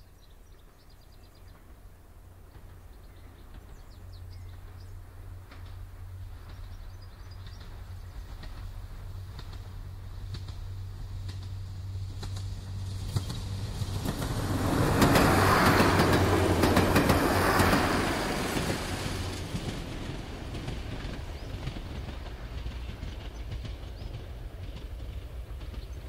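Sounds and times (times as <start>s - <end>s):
train passing: 0.1s - 26.0s
wheels rattling: 7.3s - 26.0s.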